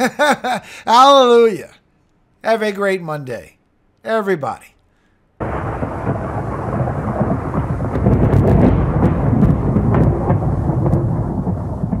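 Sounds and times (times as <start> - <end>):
thunder rumbling and cracking: 5.4 - 12.0.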